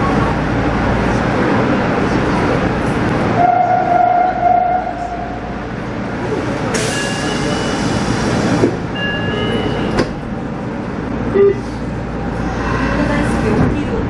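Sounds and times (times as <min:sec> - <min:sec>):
subway train equipment running: 0:00.0 - 0:14.0.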